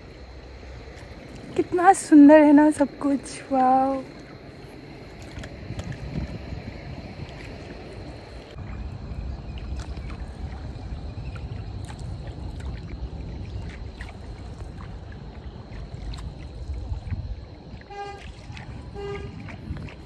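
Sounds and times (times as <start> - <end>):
steady low rumble: 0.0 - 20.0
water lapping against boat hull: 0.0 - 20.0
small splashes: 3.2 - 20.0.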